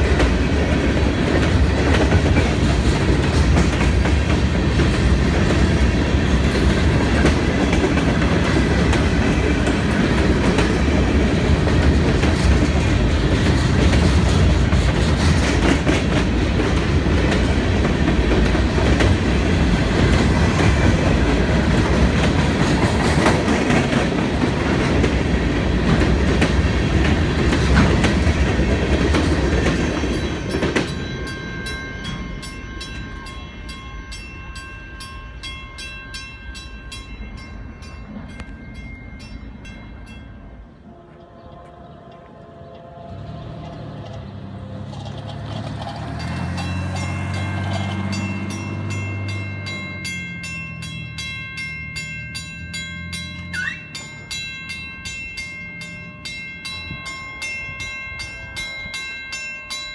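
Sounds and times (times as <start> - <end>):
train wheels clattering: 0.0 - 33.4
crossing warning bell ringing: 0.0 - 59.9.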